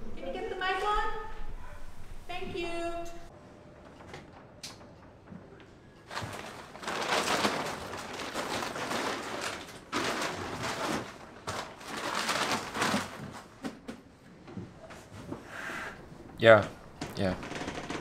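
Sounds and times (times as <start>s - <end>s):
plastic sheet crinkling: 6.1s - 13.6s, 17.2s - 18.0s.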